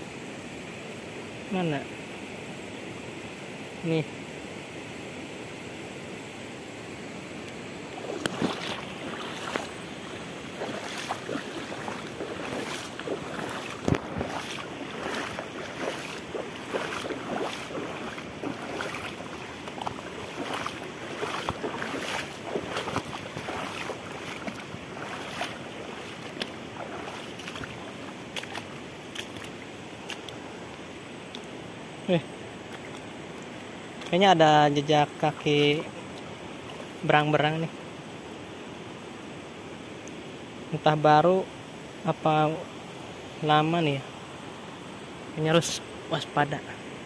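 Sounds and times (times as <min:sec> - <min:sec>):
river flowing: 0:00.0 - 0:40.6
footsteps splashing through water: 0:08.0 - 0:30.4.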